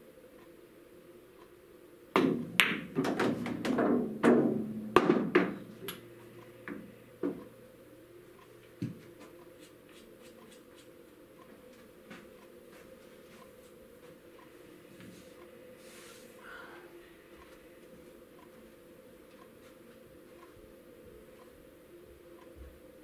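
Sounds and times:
ball set down knocks: 2.2s - 6.0s
cue striking ball: 2.2s - 6.0s
ball rolling through ball return: 2.2s - 7.5s
pool balls clicking: 2.2s - 7.5s.

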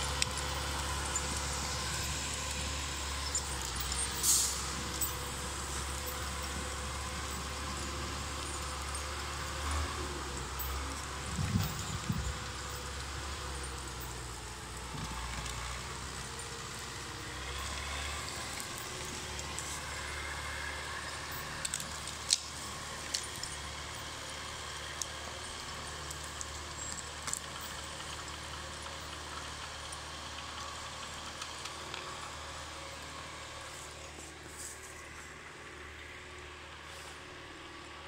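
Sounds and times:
diesel engine running: 0.0s - 38.0s.

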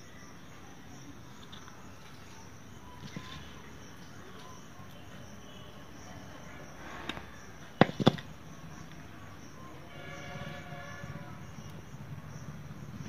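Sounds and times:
insect chirring: 0.0s - 13.0s.

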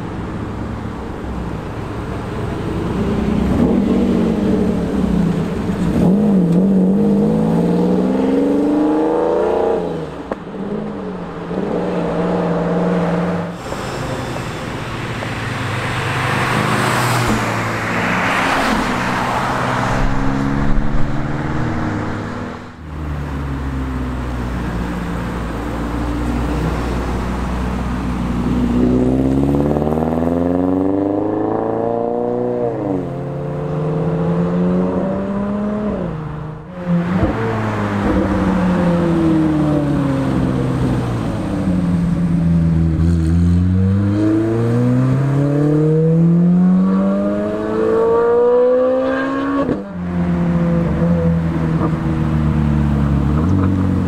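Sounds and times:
car engines accelerating past: 28.4s - 54.0s.

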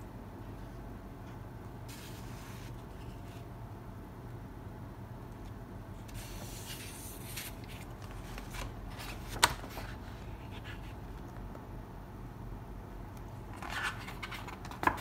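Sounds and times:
steady low hum: 0.0s - 15.0s
paper rustling: 6.1s - 11.0s, 13.5s - 15.0s.

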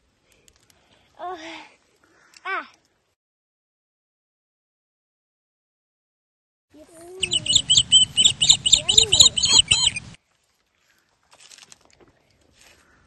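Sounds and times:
rapid high chirps: 7.2s - 10.2s.

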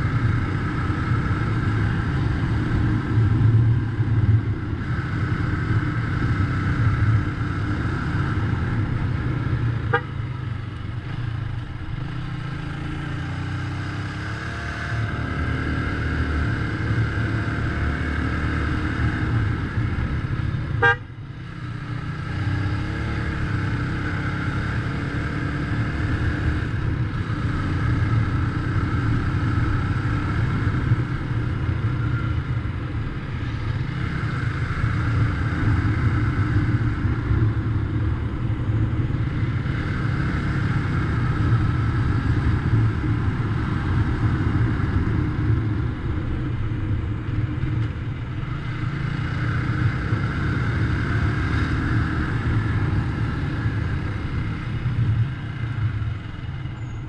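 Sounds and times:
motorcycle engine rumbling: 0.0s - 57.0s.

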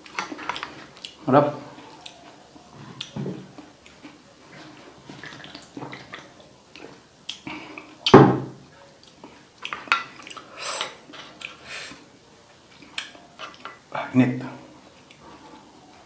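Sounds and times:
mouth clicks and chewing: 0.0s - 8.2s, 8.8s - 12.0s, 12.7s - 13.8s.

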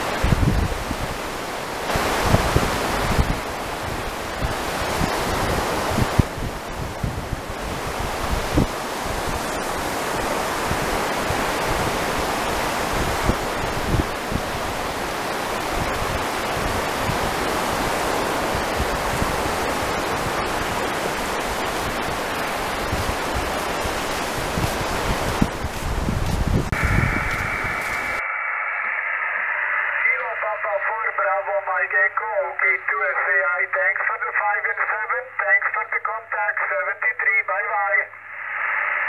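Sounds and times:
wind on microphone: 0.0s - 28.2s
sea surf breaking: 0.0s - 31.7s.

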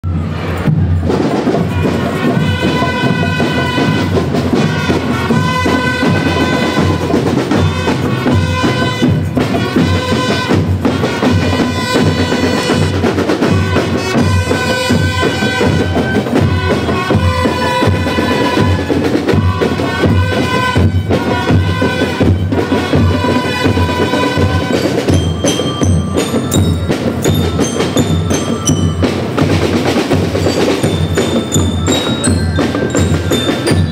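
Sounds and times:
band playing a march: 0.0s - 33.9s
drums keeping a steady beat: 0.0s - 33.9s
ringing bell lyre notes: 24.7s - 33.9s.

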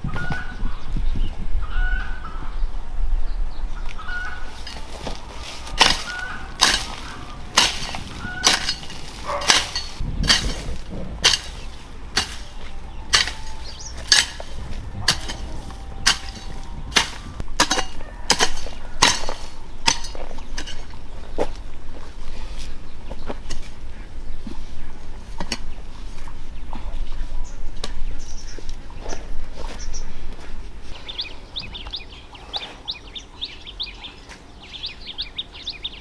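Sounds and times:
hoe chopping into soil: 4.6s - 21.0s.

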